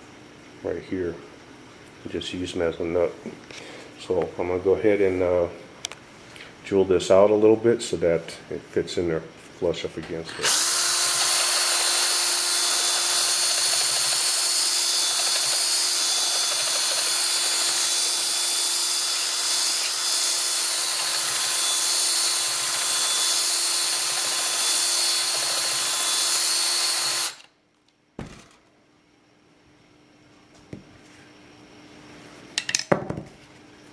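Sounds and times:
cordless drill drilling metal: 10.3 - 27.6.

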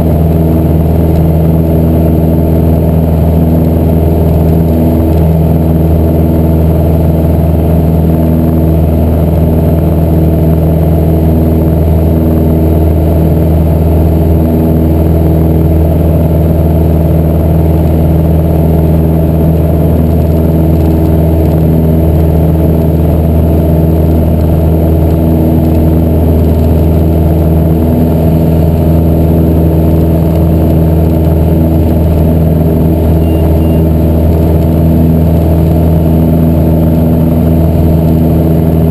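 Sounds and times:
airplane engine and propeller drone: 0.0 - 38.9.

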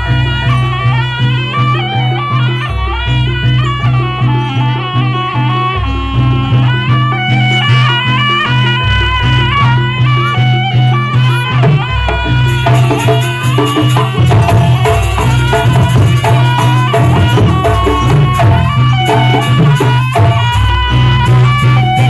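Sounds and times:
wavering reed melody: 0.0 - 22.0
jingling rattle percussion: 10.1 - 22.0
drums: 10.6 - 22.0.

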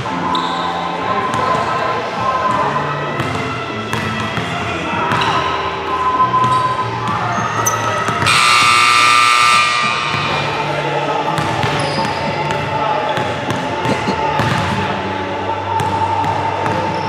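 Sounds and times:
voices in a hall: 0.0 - 17.0
basketballs bouncing on gym floor: 2.5 - 5.4, 6.4 - 8.8, 11.3 - 14.9
scoreboard buzzer: 8.2 - 10.5.

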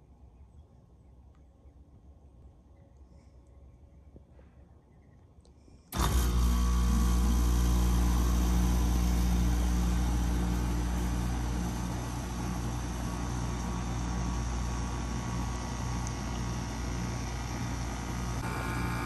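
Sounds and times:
heat pump humming: 5.9 - 19.0.

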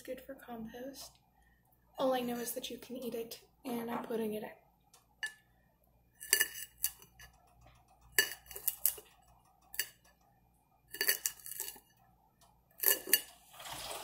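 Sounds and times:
knife clinking against a pan: 8.2 - 9.0.

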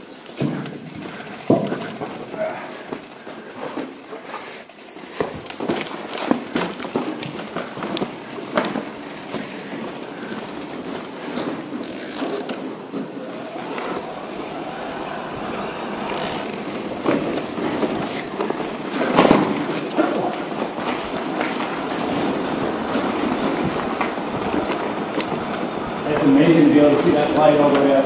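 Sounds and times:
bike tyre noise on rough ground: 0.0 - 28.0
knocks and rattles: 0.2 - 4.1
heavy bumps: 0.3 - 3.9, 5.2 - 28.0.

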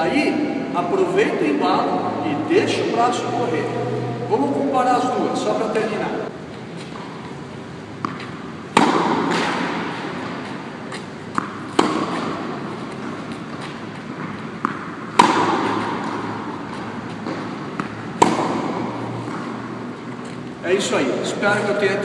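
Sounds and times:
tennis ball bouncing on clay: 8.0 - 20.3
tennis ball hit by racket: 8.0 - 20.4.

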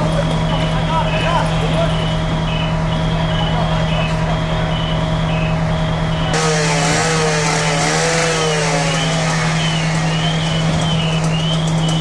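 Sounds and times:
fire engine droning: 0.0 - 12.0
power saw running: 6.3 - 12.0.

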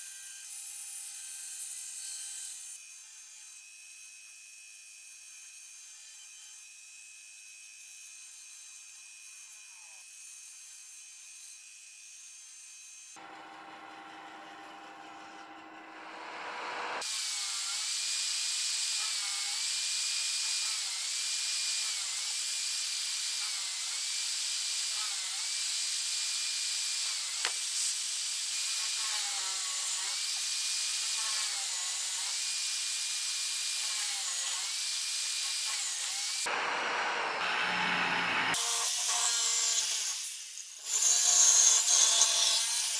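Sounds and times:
electric drill boring wood: 0.0 - 42.9
band saw running: 13.2 - 19.6, 35.6 - 42.9.

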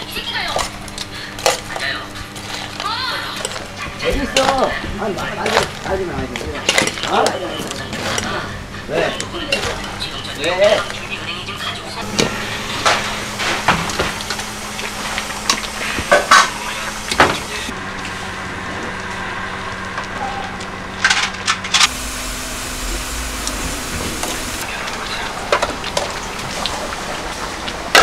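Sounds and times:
kitchen hum: 0.0 - 28.0.

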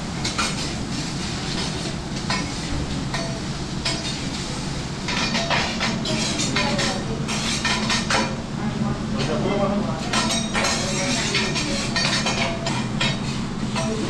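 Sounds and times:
metal utensils clinking on griddle: 1.5 - 4.3, 5.1 - 8.4, 10.1 - 14.0.

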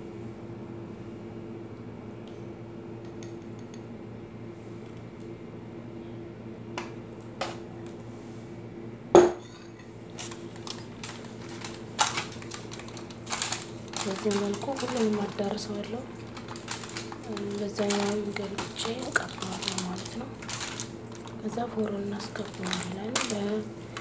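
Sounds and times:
steady low hum: 0.0 - 24.0
aluminium foil crinkling: 10.0 - 24.0.

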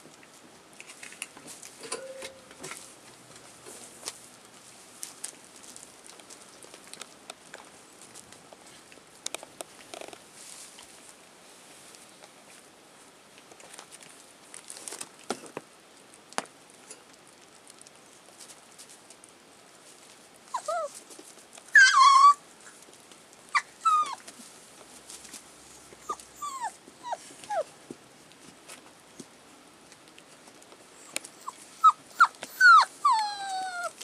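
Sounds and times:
puppies whimpering and yelping: 20.5 - 21.0, 21.7 - 22.4, 23.5 - 24.2, 26.0 - 27.7, 31.0 - 34.0.

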